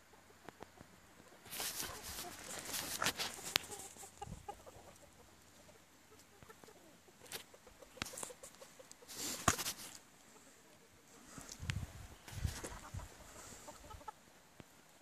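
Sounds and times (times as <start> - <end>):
chickens clucking softly: 0.0 - 15.0
rustling noise: 1.4 - 4.4, 7.2 - 10.1, 11.2 - 13.6.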